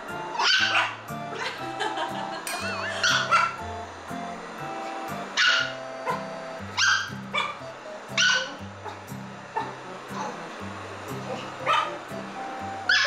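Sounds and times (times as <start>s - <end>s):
light background music: 0.0s - 13.0s
small dog barking: 0.4s - 1.0s, 2.9s - 3.6s, 5.4s - 7.6s, 8.2s - 9.0s, 11.3s - 12.0s.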